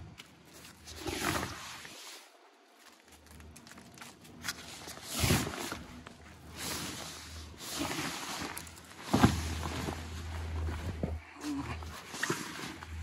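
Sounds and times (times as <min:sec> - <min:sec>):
low steady hum: 0:00.0 - 0:13.0
fabric cover rustling: 0:04.2 - 0:13.0.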